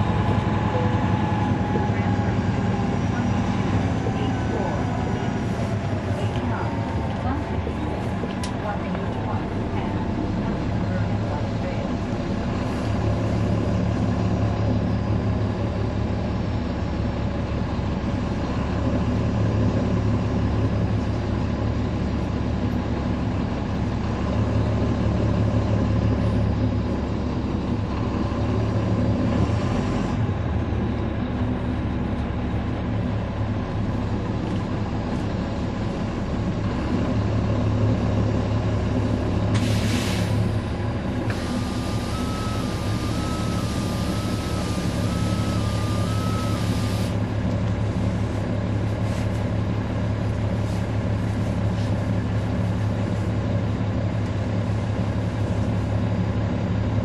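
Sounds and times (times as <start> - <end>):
bus diesel engine droning: 0.0 - 57.0
short air hiss: 39.5 - 40.5.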